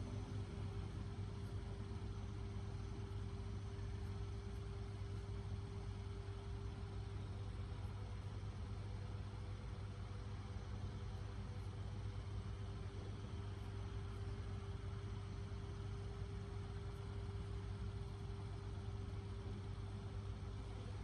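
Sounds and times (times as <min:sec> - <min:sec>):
faint constant tone: 0:00.0 - 0:21.0
low mechanical hum: 0:00.0 - 0:21.0.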